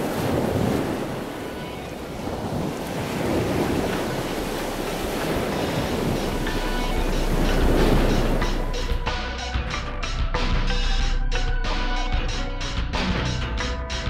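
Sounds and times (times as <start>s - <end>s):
wind buffeting microphone: 0.0s - 9.4s
surf rushing: 0.0s - 10.1s.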